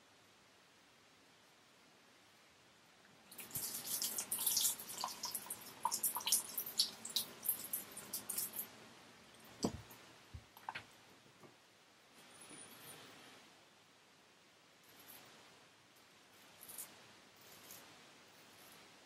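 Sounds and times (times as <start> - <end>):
water splashing in a sink: 3.2 - 8.7.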